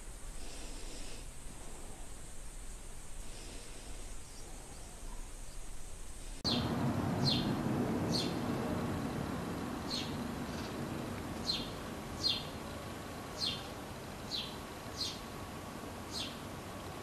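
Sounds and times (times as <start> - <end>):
faint hiss: 0.0 - 17.0
outdoor background noise: 0.0 - 17.0
sparrow chirps: 6.5 - 8.4, 9.9 - 10.8, 11.4 - 12.6, 13.4 - 13.7, 14.3 - 15.2, 16.1 - 16.4.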